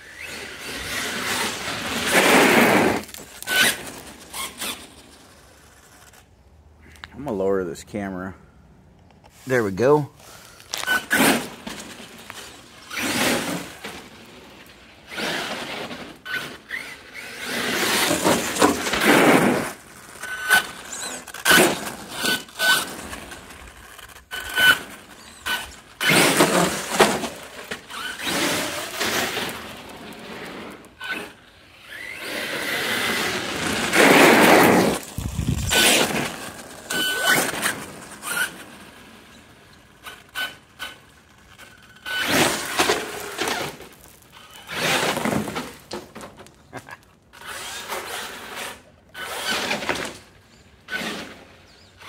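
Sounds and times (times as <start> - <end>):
rc truck motor throttle bursts: 0.0 - 6.2, 12.4 - 14.0, 15.1 - 45.8, 47.3 - 50.2.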